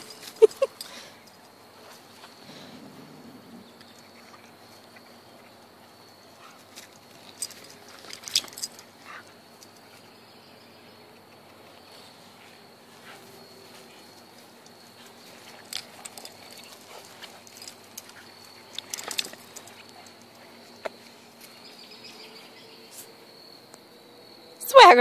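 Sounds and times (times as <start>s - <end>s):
high insect trill: 0.0s - 25.0s
dogs scuffling: 11.2s - 23.1s.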